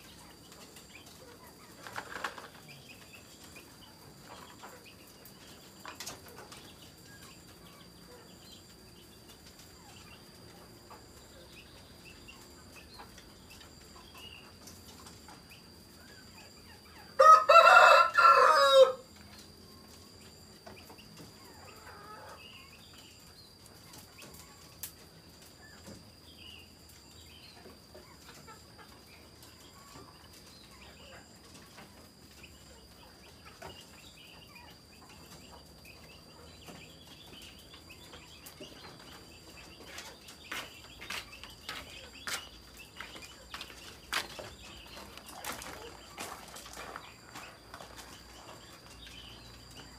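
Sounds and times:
rooster crowing: 17.2s - 19.1s.

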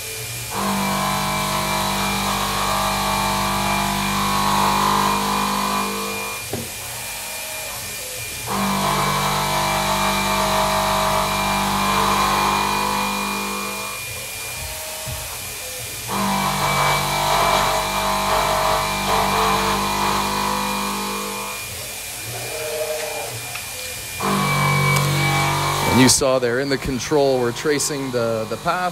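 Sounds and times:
milling cutter humming through metal: 0.0s - 28.9s
spindle high whine: 19.8s - 28.9s.

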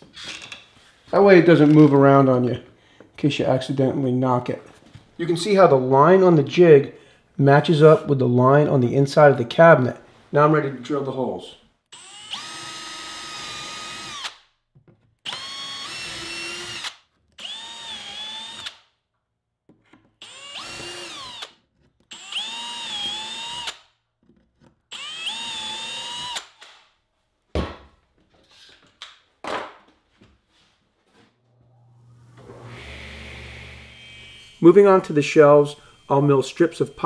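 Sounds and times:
cordless drill drilling wood: 11.9s - 14.4s, 15.2s - 18.9s, 20.2s - 23.9s, 24.9s - 26.6s, 32.4s - 37.0s.

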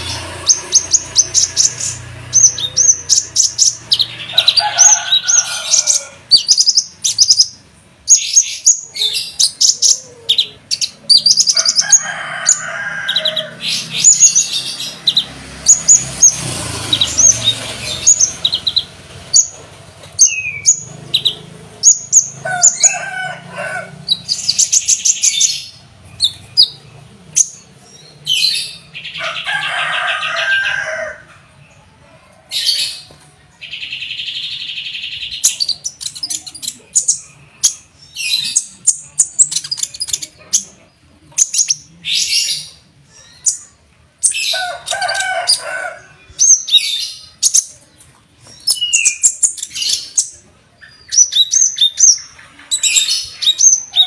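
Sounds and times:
bird singing chirps and trills: 0.0s - 29.4s, 32.5s - 54.0s.

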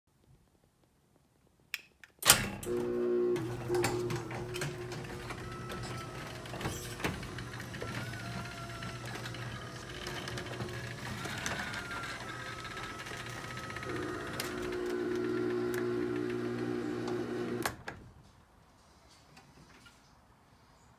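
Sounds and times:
garage door opener motor hum: 2.3s - 17.9s.

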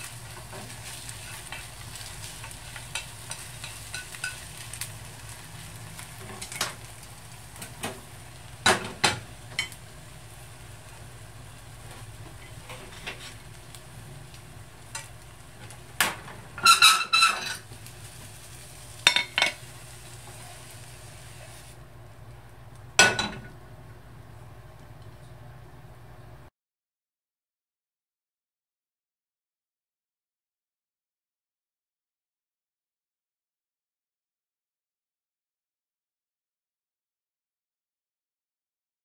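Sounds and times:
butter and egg sizzling in a pan: 0.0s - 21.8s
chopsticks clinking against a pan: 2.4s - 4.5s, 19.0s - 19.6s.

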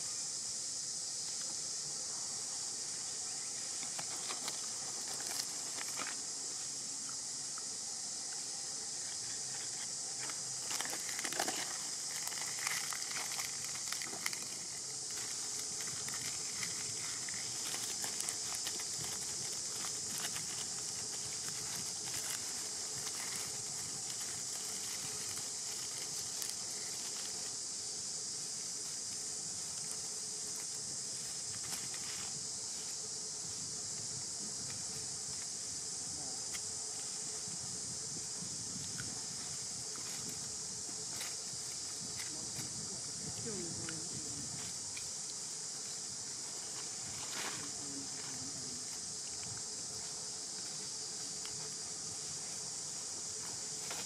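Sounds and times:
high-pitched insect drone: 0.0s - 54.0s
dry leaves crackling: 3.8s - 6.3s, 9.1s - 33.0s.

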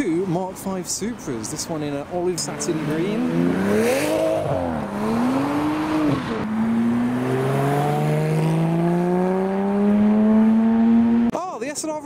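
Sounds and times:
sports car accelerating: 2.4s - 11.3s
another sports car driving off: 2.6s - 11.3s.

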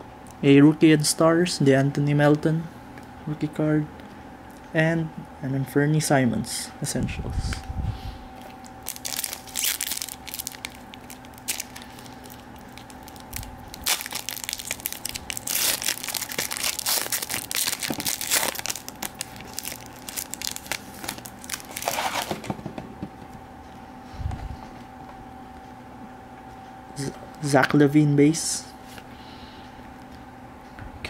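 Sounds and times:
foil wrapper tearing and crinkling: 8.6s - 22.4s.

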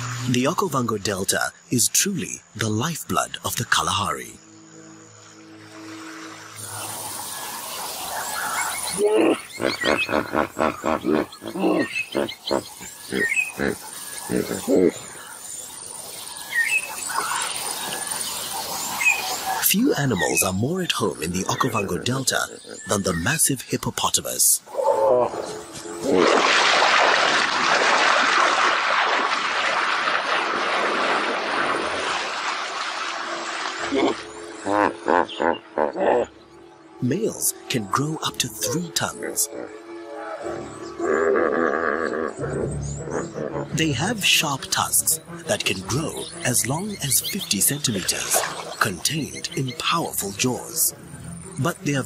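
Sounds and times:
hippopotamus grunting honks: 9.0s - 15.1s, 38.6s - 43.8s
water splashing and churning: 24.8s - 35.8s, 44.8s - 50.8s.

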